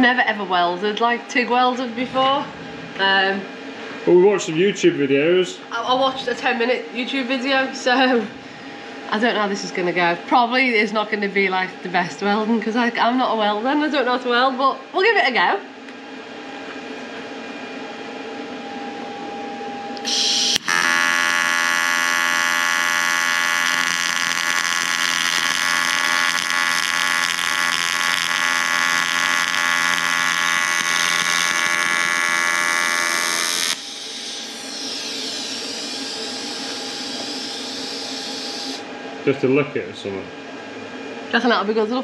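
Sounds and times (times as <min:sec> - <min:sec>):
low electrical hum: 0:00.0 - 0:42.0
welding arc hissing and buzzing: 0:20.0 - 0:38.9.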